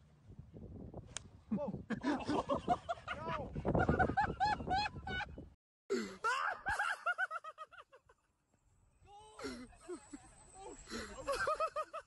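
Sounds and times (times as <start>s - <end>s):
people laughing and shrieking: 9.2s - 12.0s.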